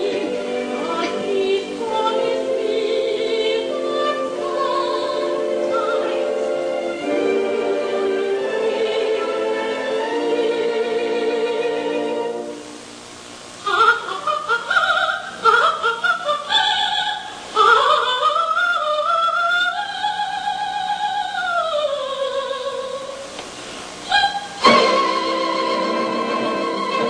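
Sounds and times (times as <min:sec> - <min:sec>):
operatic soprano singing: 0:00.0 - 0:12.6, 0:13.6 - 0:23.3, 0:24.0 - 0:27.0.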